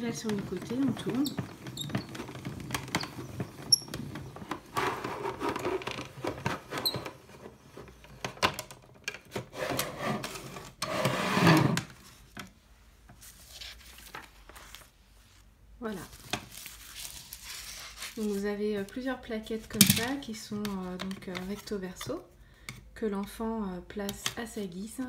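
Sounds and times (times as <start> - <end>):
paper rustling: 13.2 - 19.0.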